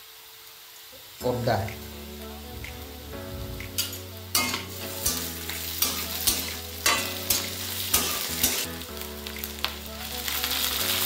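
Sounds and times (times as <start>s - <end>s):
spices sizzling in hot oil: 0.0s - 11.0s
metal spatula scraping a pan: 3.4s - 8.7s.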